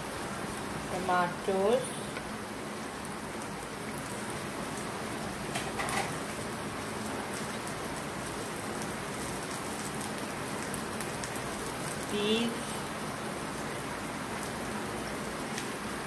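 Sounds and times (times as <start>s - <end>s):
chicken sizzling in oil: 0.0s - 16.0s.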